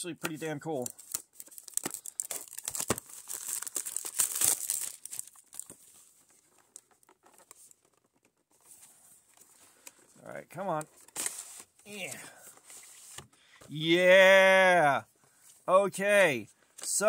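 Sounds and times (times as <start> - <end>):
plastic wrap crinkling and tearing: 0.8 - 8.2.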